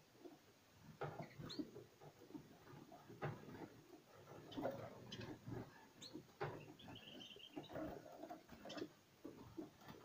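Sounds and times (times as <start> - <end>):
small bird chirping: 1.2 - 1.8, 4.4 - 9.0.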